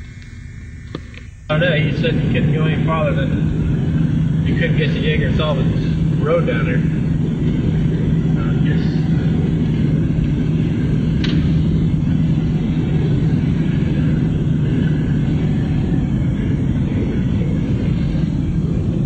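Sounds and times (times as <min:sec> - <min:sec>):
car engine and road rumble: 0:01.8 - 0:19.0.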